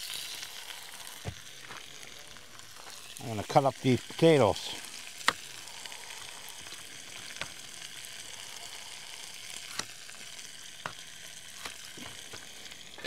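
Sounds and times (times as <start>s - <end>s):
meat sizzling in oil: 0.0s - 13.0s.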